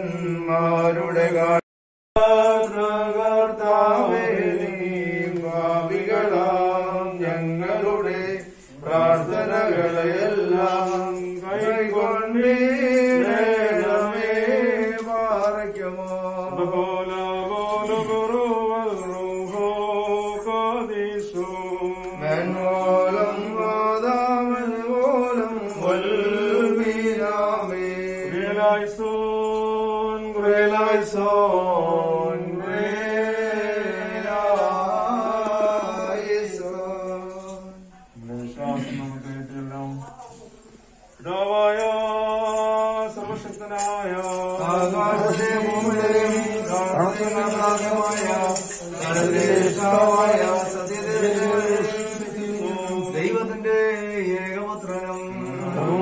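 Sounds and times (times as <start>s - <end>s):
voices singing a hymn: 2.2s - 40.5s, 41.1s - 56.0s.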